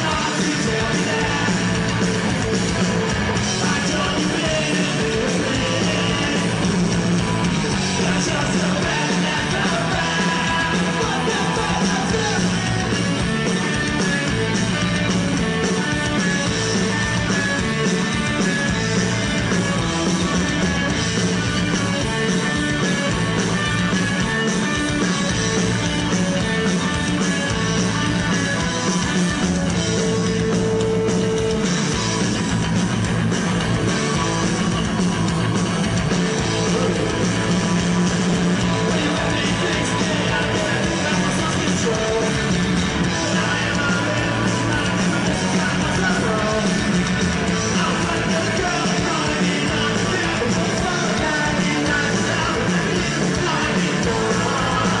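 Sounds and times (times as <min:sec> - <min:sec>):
person singing: 0:00.0 - 0:02.0, 0:03.5 - 0:07.0, 0:07.8 - 0:13.2, 0:38.5 - 0:46.9, 0:47.5 - 0:55.0
electric guitar: 0:00.0 - 0:55.0
punk rock band playing live: 0:00.0 - 0:55.0.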